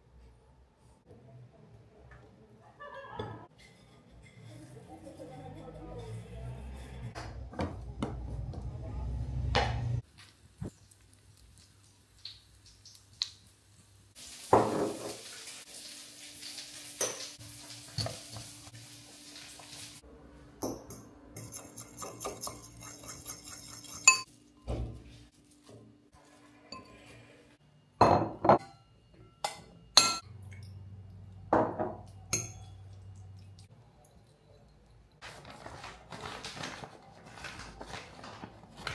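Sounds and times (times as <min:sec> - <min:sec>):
cutlets sizzling in oil: 0:10.1 - 0:20.0
fork beating in ceramic bowl: 0:21.4 - 0:24.3.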